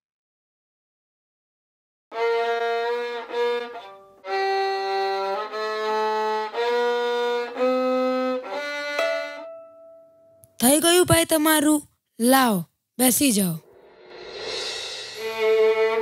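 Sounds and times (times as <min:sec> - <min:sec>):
slow violin melody: 0:02.1 - 0:10.2, 0:15.2 - 0:16.0.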